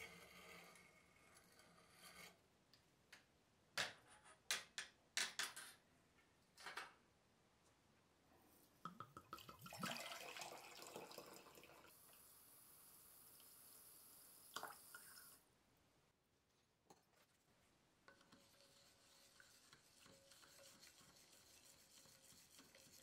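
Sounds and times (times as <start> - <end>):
liquid pouring into glass beaker: 9.2 - 12.0.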